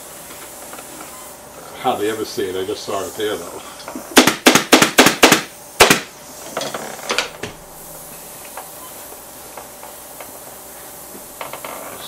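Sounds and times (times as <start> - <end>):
faint steady hiss: 0.0 - 4.3, 5.3 - 12.0
pneumatic staple gun firing: 4.1 - 7.6.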